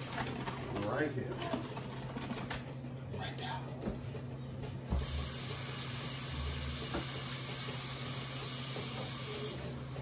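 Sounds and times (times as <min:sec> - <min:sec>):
tap water running into cup: 0:04.9 - 0:10.0.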